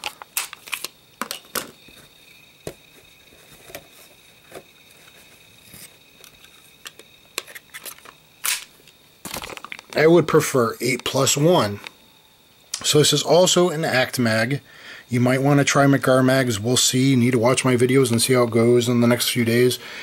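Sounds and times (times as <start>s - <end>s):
faint high whine: 0.0s - 20.0s
pistol and magazine clicks: 8.4s - 8.7s.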